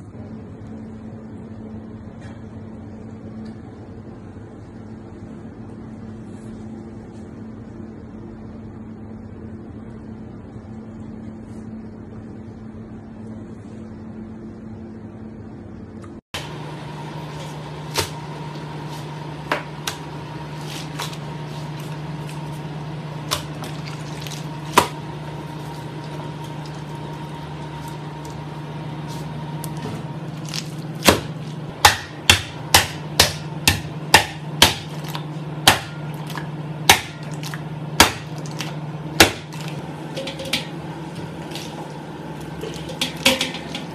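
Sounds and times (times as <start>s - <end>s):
kitchen hum: 0.0s - 43.9s
pot pounding octopus on board: 23.2s - 26.8s, 30.4s - 40.8s, 42.6s - 43.9s.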